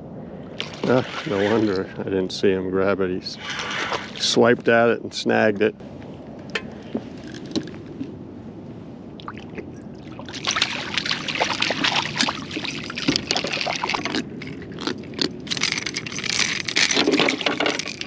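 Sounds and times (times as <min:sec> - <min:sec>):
fish splashing at surface: 0:00.6 - 0:01.7, 0:09.2 - 0:18.0.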